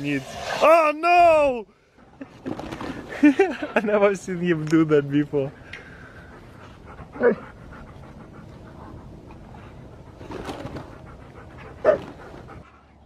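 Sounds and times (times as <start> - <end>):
puppy panting and snuffling: 6.0 - 13.0.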